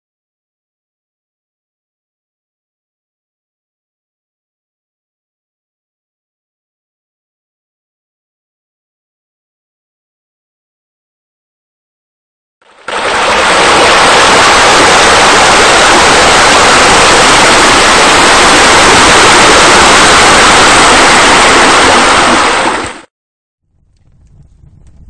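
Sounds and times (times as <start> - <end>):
rushing water: 12.6 - 23.1.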